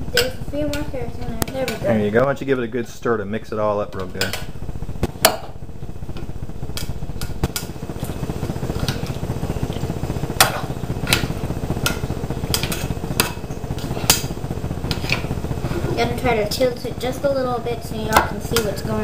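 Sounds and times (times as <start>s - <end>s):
steady low rumble: 0.0s - 19.0s
spatula stirring food in a pot: 7.5s - 15.3s.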